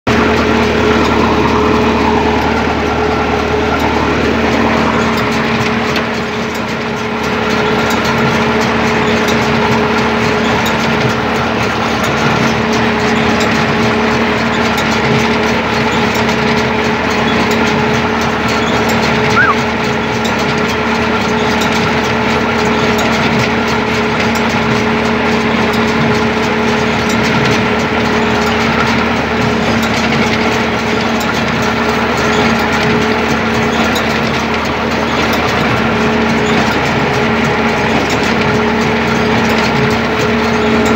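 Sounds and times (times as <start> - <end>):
tractor diesel engine running: 0.0 - 40.9
hay baler baling: 0.1 - 40.9
brief squeak: 18.6 - 19.7.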